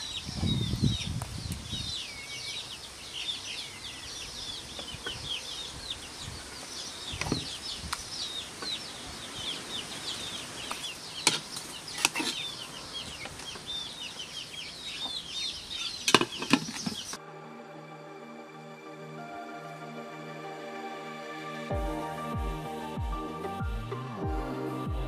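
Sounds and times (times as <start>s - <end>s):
small birds chirping: 0.0s - 17.2s.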